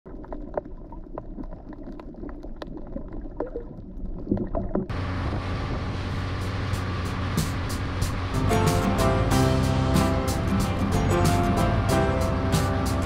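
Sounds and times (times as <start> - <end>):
muffled water gurgling: 0.1 - 8.4
boat engine and water: 4.8 - 13.0.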